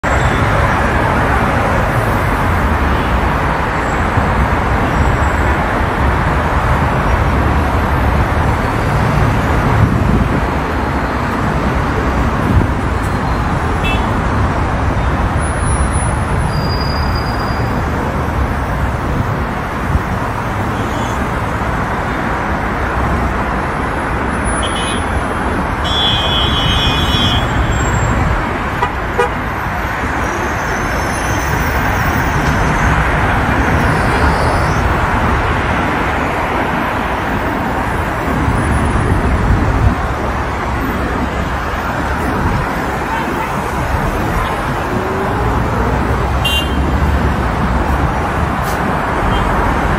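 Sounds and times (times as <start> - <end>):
road traffic noise: 0.0 - 49.9.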